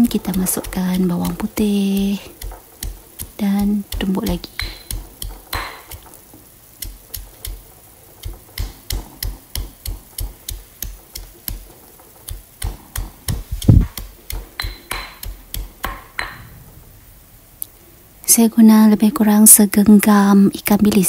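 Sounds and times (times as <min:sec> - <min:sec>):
stone pestle pounding in mortar: 0:00.0 - 0:06.1, 0:08.2 - 0:16.4.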